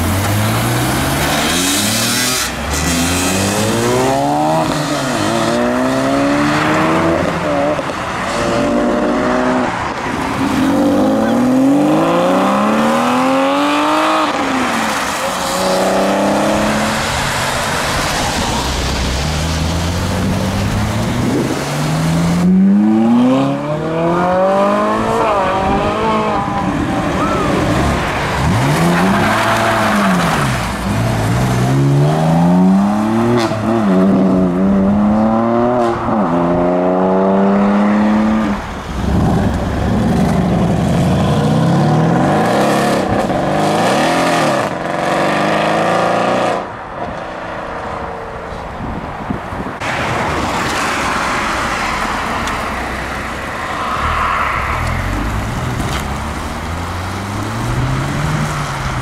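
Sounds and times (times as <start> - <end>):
car engine accelerating loudly: 10.4 - 15.0.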